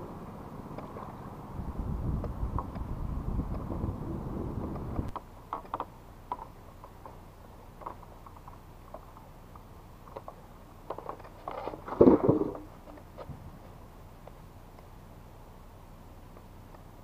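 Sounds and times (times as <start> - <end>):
wind buffeting microphone: 1.2 - 5.2.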